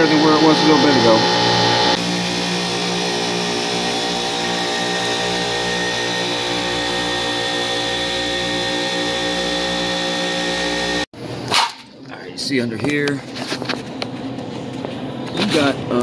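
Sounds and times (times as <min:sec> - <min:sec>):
refrigeration machine hum: 0:00.0 - 0:12.7.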